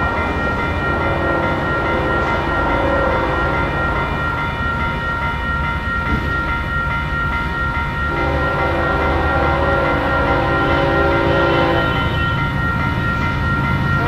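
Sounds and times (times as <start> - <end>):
crossing warning bell ringing: 0.0 - 14.0
train rumble: 0.0 - 14.0
locomotive horn: 8.1 - 12.4.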